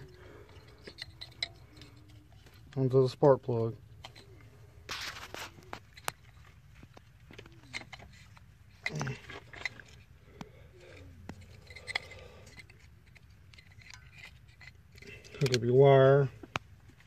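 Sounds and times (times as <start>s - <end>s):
low background hum: 0.0s - 17.0s
plastic clicks and scrapes: 4.0s - 15.7s.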